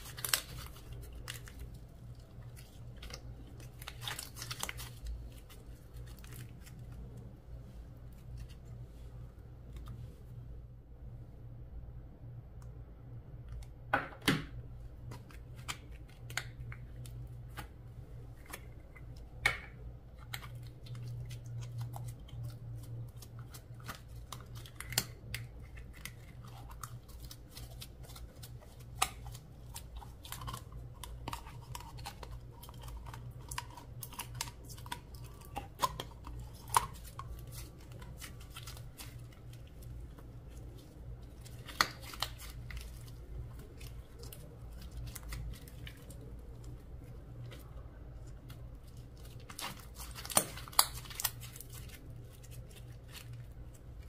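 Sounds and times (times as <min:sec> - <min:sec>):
faint low hum: 0:00.0 - 0:54.0
slime being squished by hand: 0:18.4 - 0:54.0.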